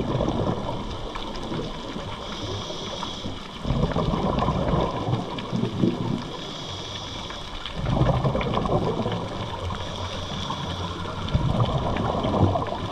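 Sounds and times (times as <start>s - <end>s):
exhaled bubbles underwater: 0.0s - 12.9s
regulator hiss: 2.1s - 3.6s, 6.2s - 7.7s, 9.6s - 11.4s.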